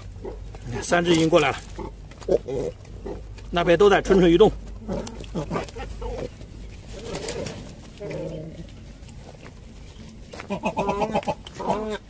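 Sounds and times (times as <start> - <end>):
cormorants calling: 4.0 - 8.8, 10.3 - 12.0.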